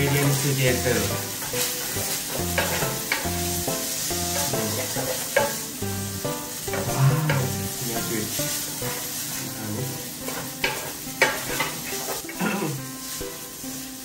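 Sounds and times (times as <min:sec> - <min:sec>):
background music: 0:00.0 - 0:14.0
spaghetti sizzling in a pan: 0:00.0 - 0:14.0
wooden spatula scraping and knocking: 0:06.7 - 0:08.2.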